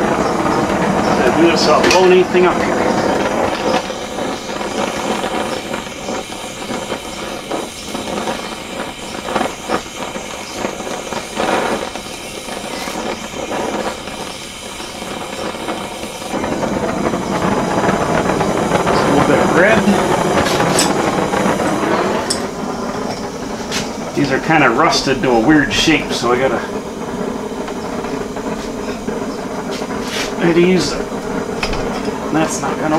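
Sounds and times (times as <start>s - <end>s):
gas torch flame hissing: 0.0s - 32.9s.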